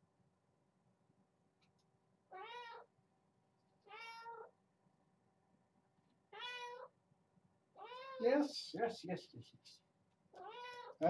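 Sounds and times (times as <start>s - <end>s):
kitten meowing: 2.3s - 2.9s, 3.9s - 4.5s, 6.4s - 6.9s, 7.8s - 8.2s, 10.4s - 11.0s.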